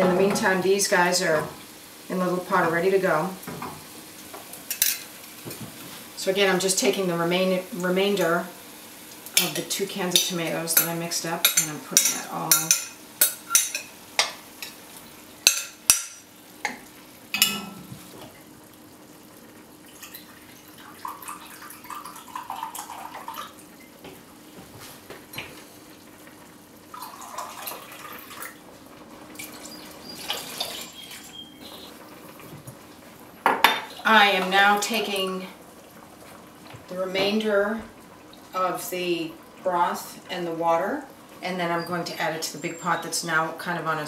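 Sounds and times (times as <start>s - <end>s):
light glass clinks: 17.4s - 17.8s
liquid pouring and splashing: 19.9s - 23.6s, 26.9s - 28.6s.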